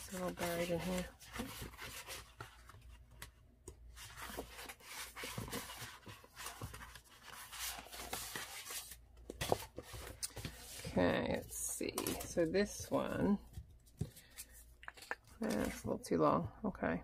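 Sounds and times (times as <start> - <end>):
papers rustling and sliding: 3.9 - 12.7.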